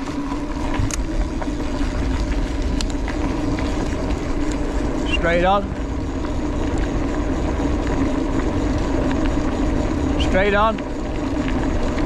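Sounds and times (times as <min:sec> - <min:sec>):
bike tyres rolling on gravel: 0:00.0 - 0:12.0.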